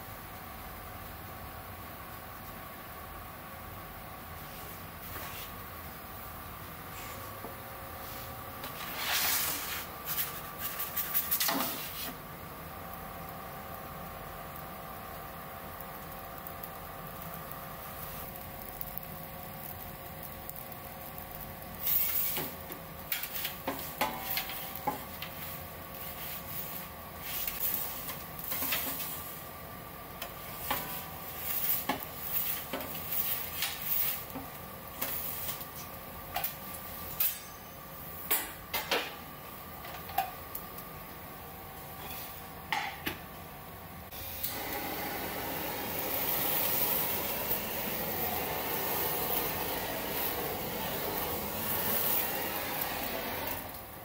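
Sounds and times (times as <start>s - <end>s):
faint steady hum: 0.0s - 54.0s
blowtorch hissing: 11.3s - 29.6s, 30.2s - 36.0s, 44.1s - 54.0s.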